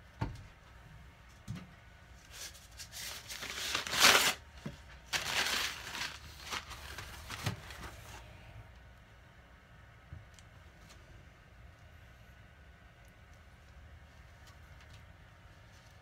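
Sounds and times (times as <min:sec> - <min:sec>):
tissue paper rustling: 0:02.2 - 0:08.2.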